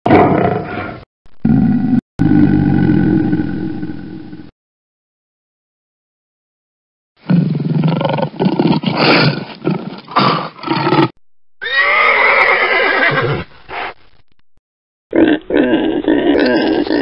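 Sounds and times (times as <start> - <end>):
horse whinnying: 11.6 - 13.5.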